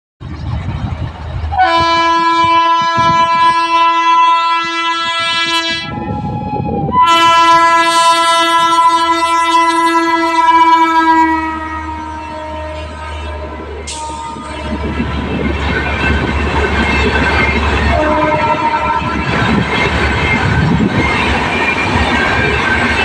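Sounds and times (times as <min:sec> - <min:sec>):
train rumble: 0:00.2 - 0:23.0
locomotive horn blasts: 0:01.5 - 0:15.0, 0:17.8 - 0:19.3.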